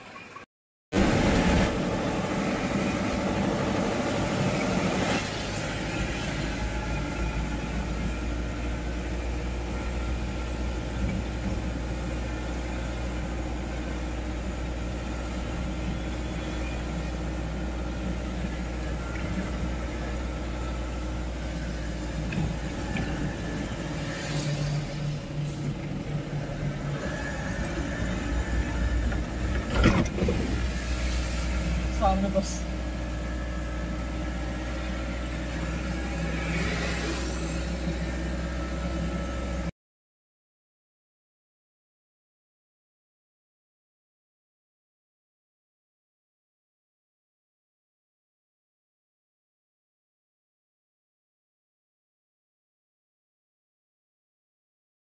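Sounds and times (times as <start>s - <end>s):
car driving on wet road: 17.0s - 39.5s.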